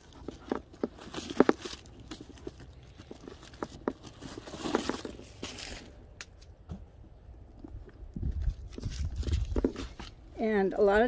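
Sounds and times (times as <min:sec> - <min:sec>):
paper packaging rustling: 0:00.0 - 0:06.4, 0:08.4 - 0:10.2.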